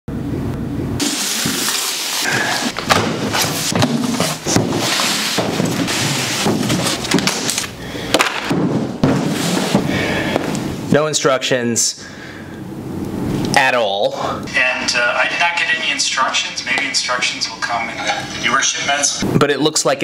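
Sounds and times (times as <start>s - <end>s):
cardboard rustling and scraping: 1.0s - 7.7s, 8.5s - 10.0s
knocks and thuds from handling: 2.7s - 10.5s.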